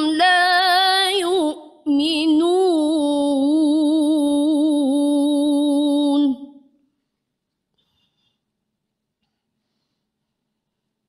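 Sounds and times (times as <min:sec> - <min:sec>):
woman chanting: 0:00.0 - 0:06.7.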